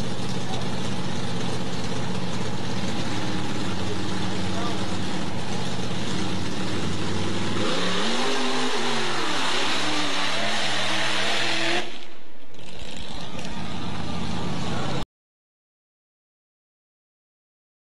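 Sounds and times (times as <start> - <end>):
engine revving: 2.4 - 15.0.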